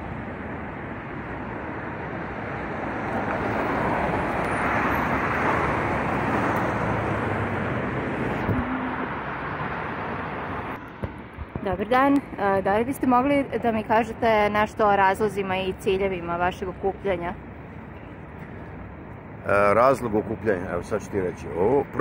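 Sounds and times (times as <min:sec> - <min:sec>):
road traffic hiss: 0:00.0 - 0:22.0.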